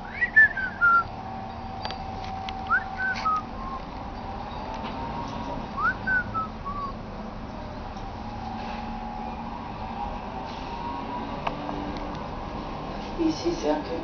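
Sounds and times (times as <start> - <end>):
person whistling calls: 0.1 - 1.0, 2.7 - 3.8, 5.8 - 7.0.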